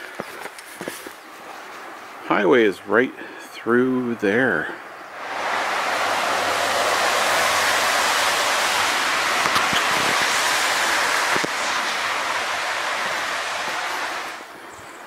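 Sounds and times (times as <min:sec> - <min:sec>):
tyres hissing on wet road: 0:05.1 - 0:15.0.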